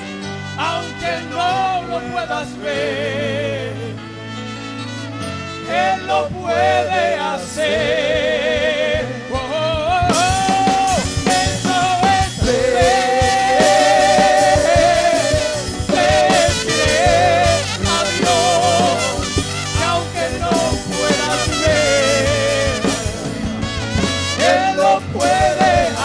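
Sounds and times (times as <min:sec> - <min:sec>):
trumpet melody: 0:00.0 - 0:02.9, 0:03.6 - 0:07.9, 0:08.9 - 0:26.0
worship band playing loudly: 0:00.0 - 0:26.0
voices singing: 0:00.7 - 0:04.0, 0:05.7 - 0:23.6, 0:24.2 - 0:26.0
drum kit: 0:06.2 - 0:26.0
electric guitar: 0:10.1 - 0:26.0.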